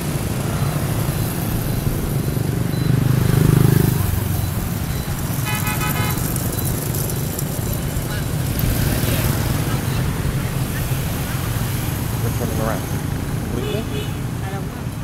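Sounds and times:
scooter engine passing: 0.0 - 14.9
motor scooter traffic: 0.0 - 15.0
horn short beeps: 1.7 - 6.8.

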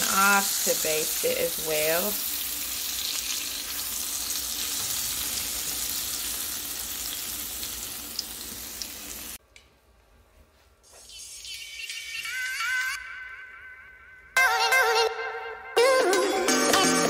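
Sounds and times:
oil sizzling and bubbling: 0.0 - 9.4.

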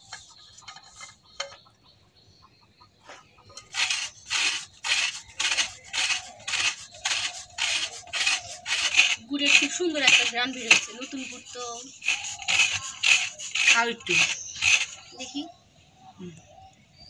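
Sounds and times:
rasping on metal grater: 0.0 - 1.4, 3.6 - 15.1.

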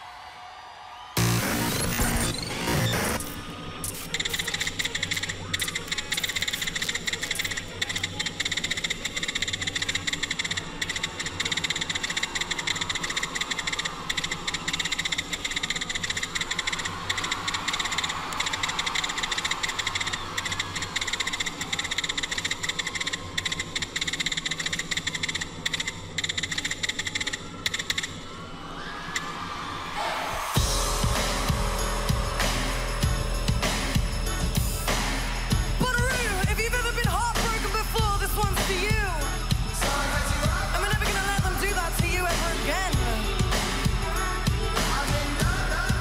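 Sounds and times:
rapid clicking and buzzing: 1.2 - 28.3.

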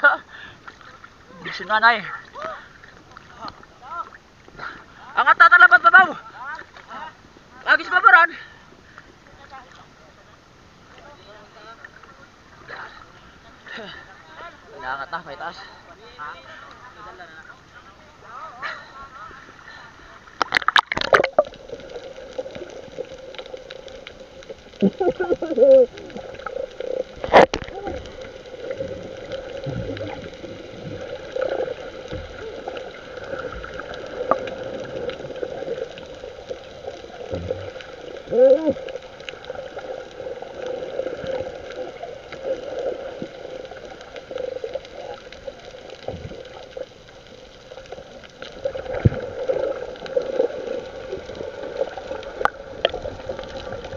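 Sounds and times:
water gurgling and sloshing: 14.3 - 53.9.

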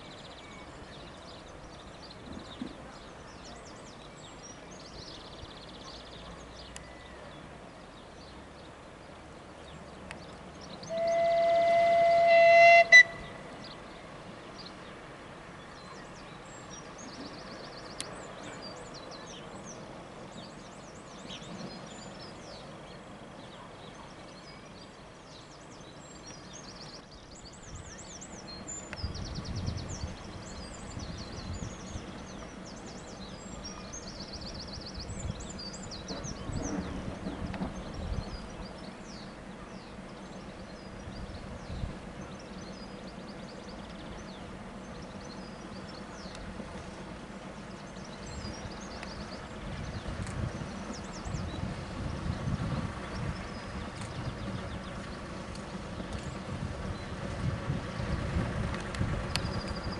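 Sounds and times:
outdoor background noise: 0.0 - 59.9
locomotive whistle: 10.8 - 13.5
faint low rumbles: 13.0 - 59.9
small birds chirping: 13.2 - 59.9.

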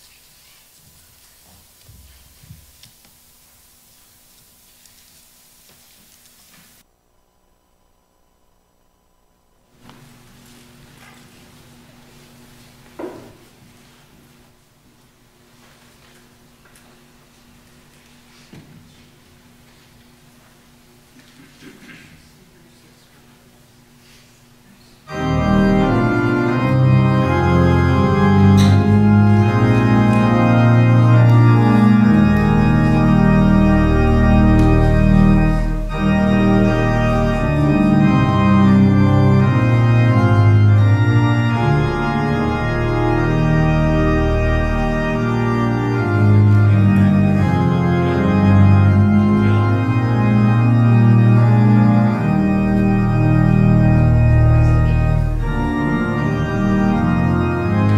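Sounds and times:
church organ chords: 25.0 - 57.9.

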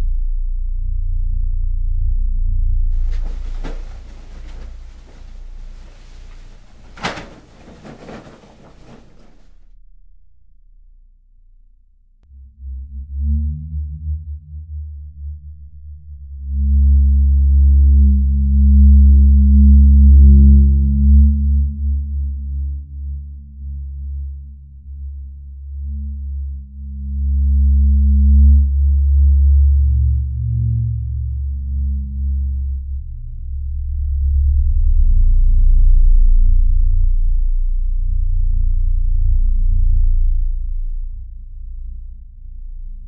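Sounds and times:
deep ominous low drone: 12.3 - 43.0.

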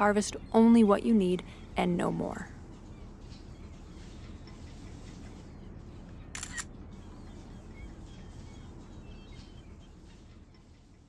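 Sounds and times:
low outdoor rumble: 0.0 - 11.0
camera shutter clicking: 6.4 - 6.7
faint bird chirps: 6.9 - 10.3.

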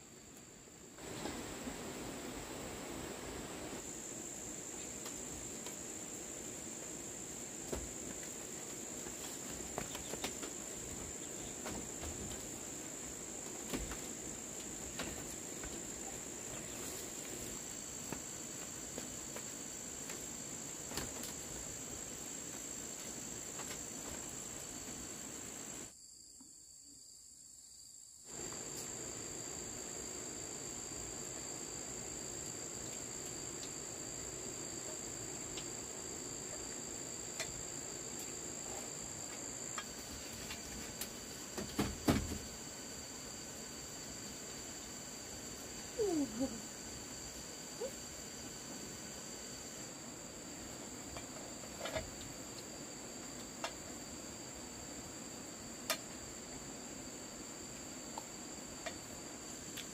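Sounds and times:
insects chirring: 0.0 - 59.9.

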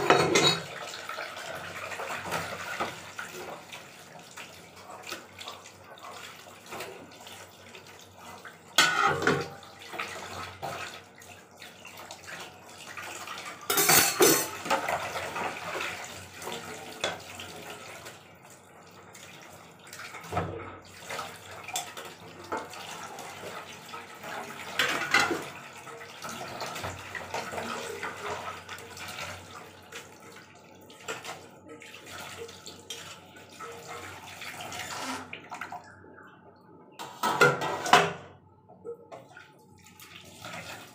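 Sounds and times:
metal dishes clinking: 0.0 - 0.7, 8.8 - 9.5, 13.7 - 14.6.

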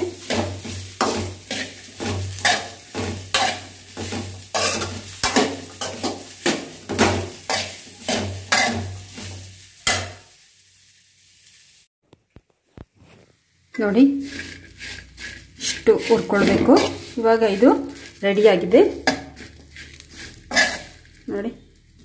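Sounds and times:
spoon scraping and stirring in pan: 0.0 - 10.4, 12.3 - 22.0.

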